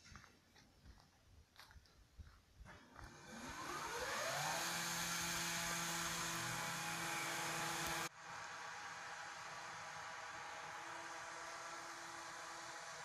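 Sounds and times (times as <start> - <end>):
machine motor whirring: 3.0 - 8.1.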